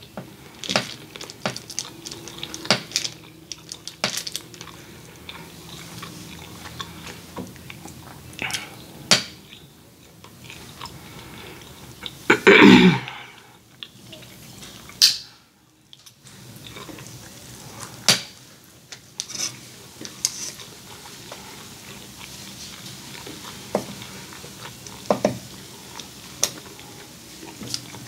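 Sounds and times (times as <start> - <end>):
chewing: 0.3 - 12.3, 13.0 - 28.0
short loud vocal sound: 12.3 - 13.4
fork scraping foil tray: 19.2 - 20.7.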